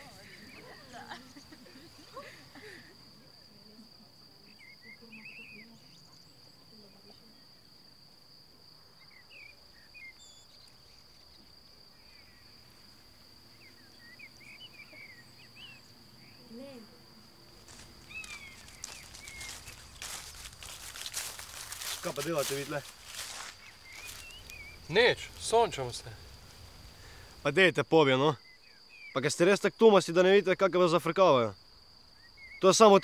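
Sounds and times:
crickets trilling: 0:00.0 - 0:33.0
bird chirps: 0:09.0 - 0:12.5, 0:13.5 - 0:16.5, 0:18.0 - 0:25.5, 0:32.2 - 0:32.7
footsteps swishing through grass: 0:17.6 - 0:24.6.

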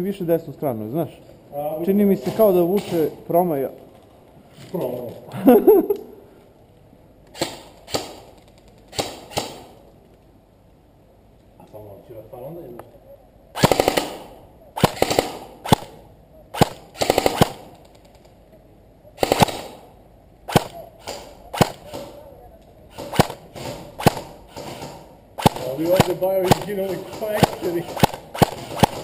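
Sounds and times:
airsoft guns firing: 0:07.3 - 0:09.8, 0:13.6 - 0:17.8, 0:19.2 - 0:22.2, 0:22.9 - 0:29.0.

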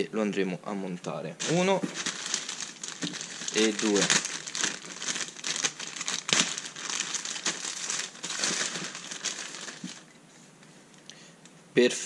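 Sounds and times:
plastic bag crinkling: 0:01.4 - 0:10.1.

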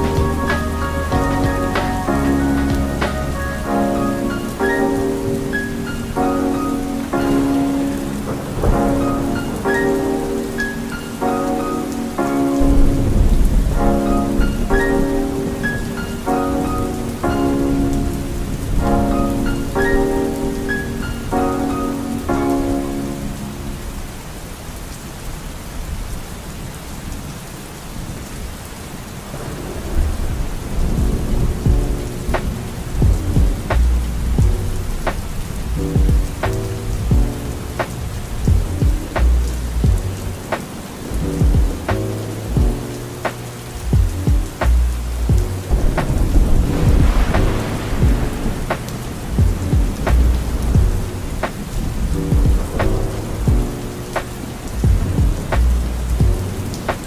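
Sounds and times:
lo-fi music with keys and drums: 0:00.0 - 0:24.2, 0:30.7 - 0:57.0
soft melody: 0:00.0 - 0:24.5, 0:30.8 - 0:57.0
thunder rumble: 0:00.0 - 0:25.0, 0:28.0 - 0:57.0
steady rain: 0:00.0 - 0:57.0.

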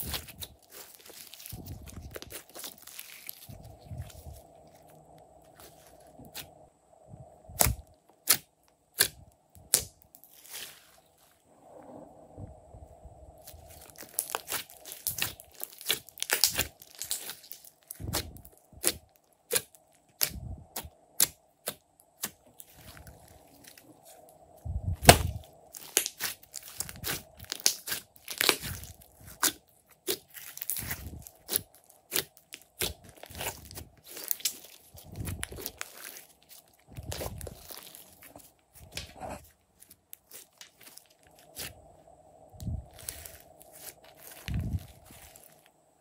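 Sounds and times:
slime squelching and popping: 0:00.0 - 0:04.9, 0:13.4 - 0:23.9, 0:24.9 - 0:41.8, 0:42.9 - 0:45.6.

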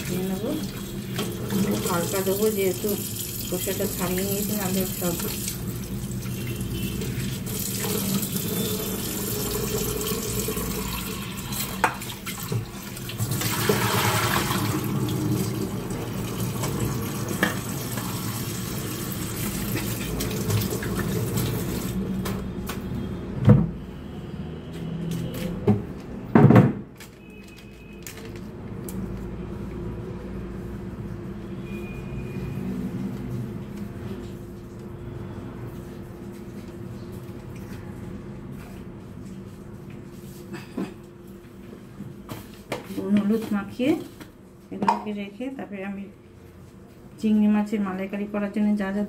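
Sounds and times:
water poured off: 0:04.9 - 0:22.0.

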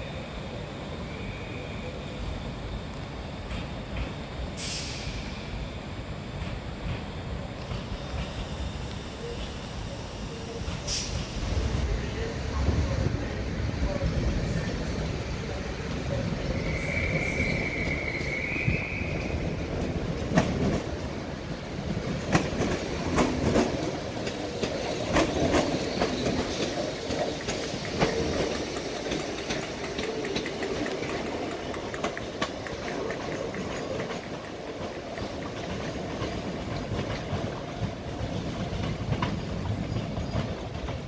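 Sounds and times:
train wheels squealing: 0:00.0 - 0:02.9, 0:03.6 - 0:06.1, 0:07.1 - 0:20.8, 0:22.4 - 0:32.4, 0:38.2 - 0:41.0
train rolling with low rumble: 0:00.0 - 0:41.0
wheels clacking over rail joints: 0:19.2 - 0:41.0.

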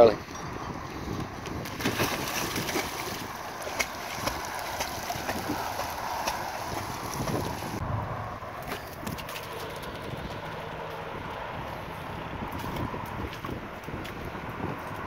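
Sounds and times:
wind rumbling on microphone: 0:00.0 - 0:15.0
dog splashing into water: 0:01.6 - 0:07.8.

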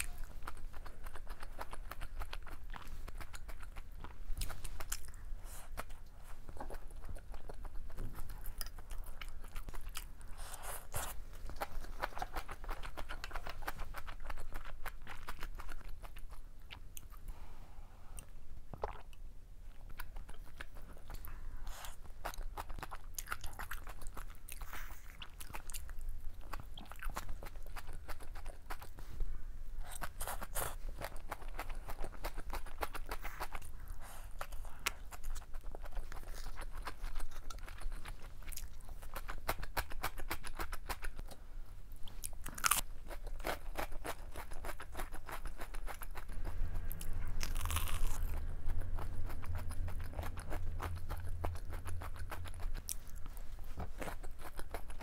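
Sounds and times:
wet chewing: 0:00.0 - 0:17.3, 0:18.2 - 0:29.1, 0:29.8 - 0:41.4, 0:42.0 - 0:55.0
crisp crunching bites: 0:47.4 - 0:48.4.

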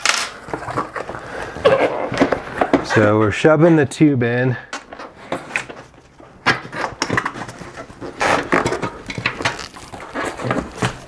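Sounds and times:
rubber rubbing and scuffing: 0:05.8 - 0:11.0.

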